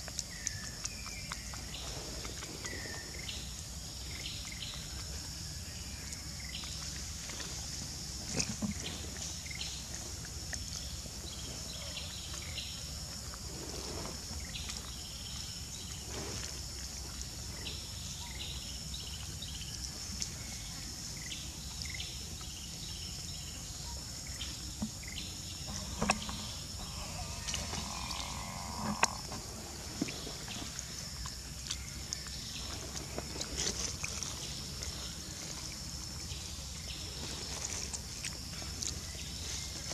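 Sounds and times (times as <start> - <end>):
high-pitched insect drone: 25.7 - 29.4.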